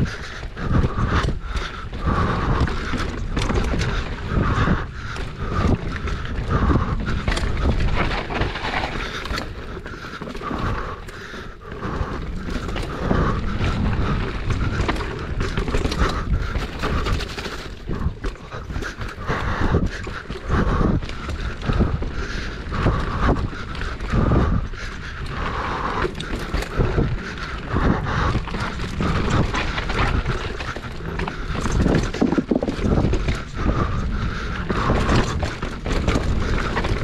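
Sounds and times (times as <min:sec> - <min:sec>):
bike rattling and knocking: 0:00.0 - 0:37.0
tyres rumbling over dirt and rock: 0:00.0 - 0:37.0.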